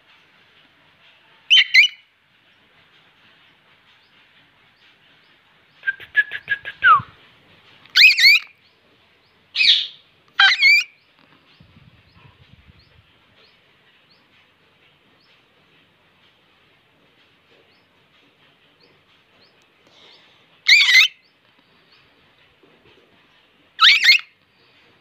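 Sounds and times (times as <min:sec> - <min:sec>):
shrill parakeet calls: 0:01.5 - 0:02.0, 0:07.9 - 0:08.5, 0:09.6 - 0:10.9, 0:20.7 - 0:21.2, 0:23.8 - 0:24.3.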